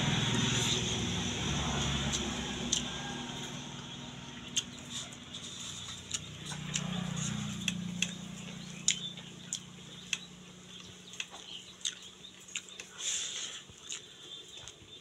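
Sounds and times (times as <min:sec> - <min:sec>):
low steady hum: 0:00.0 - 0:12.9
chewing and lip-smacking: 0:02.1 - 0:03.0, 0:04.4 - 0:15.0.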